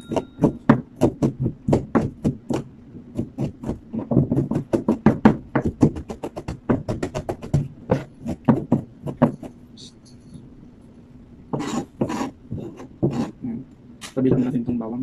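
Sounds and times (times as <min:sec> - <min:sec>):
knife chopping on cutting board: 0:00.0 - 0:09.5, 0:11.6 - 0:13.4.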